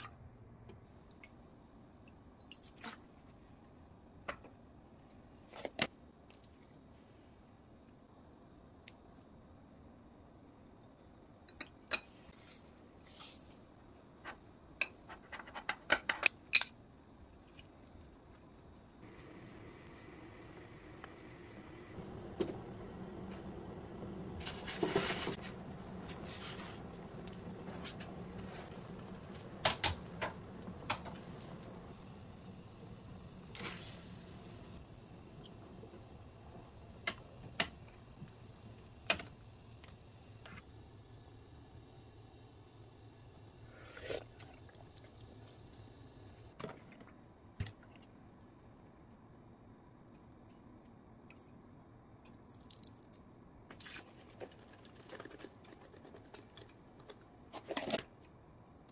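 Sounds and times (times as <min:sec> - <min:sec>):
steady low hum: 0:18.1 - 0:46.6
rustling scrape: 0:24.4 - 0:26.8.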